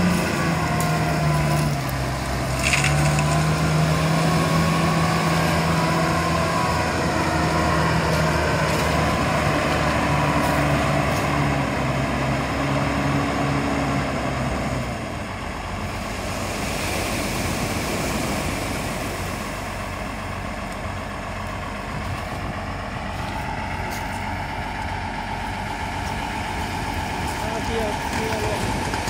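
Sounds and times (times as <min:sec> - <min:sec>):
diesel engine running: 0:00.0 - 0:29.0
surf washing over pebbles: 0:15.9 - 0:19.7, 0:26.1 - 0:29.0.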